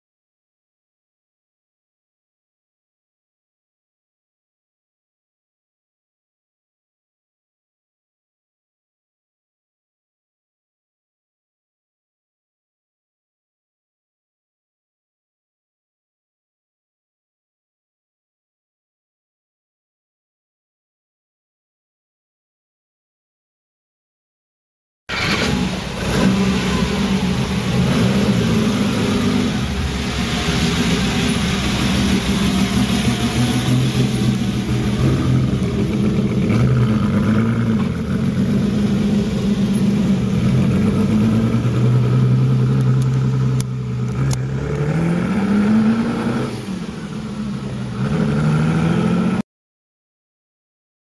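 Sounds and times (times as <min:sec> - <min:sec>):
car engine revving: 0:25.1 - 0:49.4.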